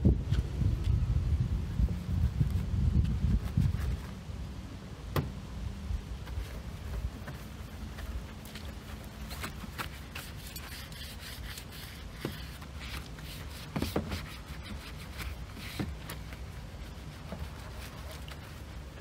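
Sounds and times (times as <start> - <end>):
brush scrubbing car bodywork: 6.2 - 19.0.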